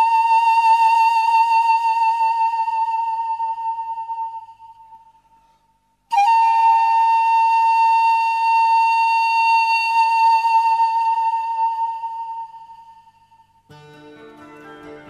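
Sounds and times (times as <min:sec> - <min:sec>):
sustained flute-like note: 0:00.0 - 0:05.0, 0:06.1 - 0:13.4.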